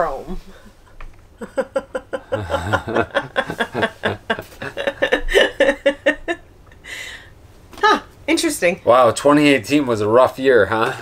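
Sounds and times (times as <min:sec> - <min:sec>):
people laughing: 0:01.4 - 0:06.4.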